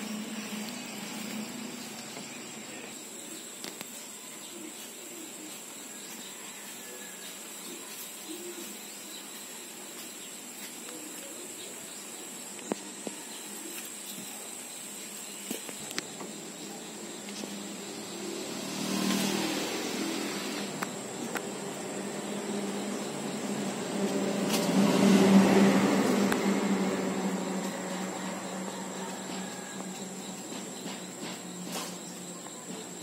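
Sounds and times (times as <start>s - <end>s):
steady hiss: 0.0s - 25.2s
vehicle passing: 17.0s - 31.7s.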